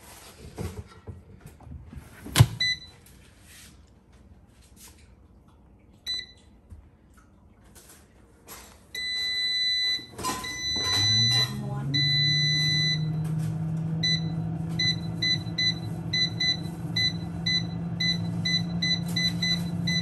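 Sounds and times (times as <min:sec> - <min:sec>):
oven door shutting: 0:02.1 - 0:02.7
long steady beep: 0:09.0 - 0:13.2, 0:14.0 - 0:20.0.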